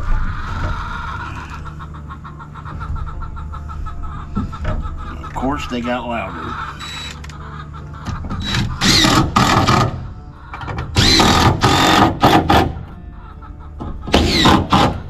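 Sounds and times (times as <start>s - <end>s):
cordless drill driving screws: 11.0s - 12.3s, 14.2s - 14.9s.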